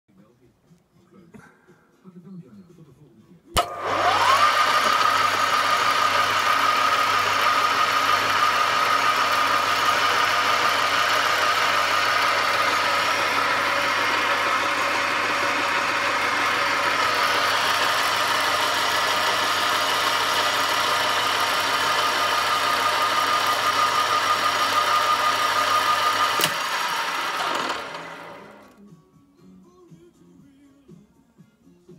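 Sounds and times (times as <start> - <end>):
lathe motor whining: 3.6 - 28.8
sharp click: 26.4 - 26.6.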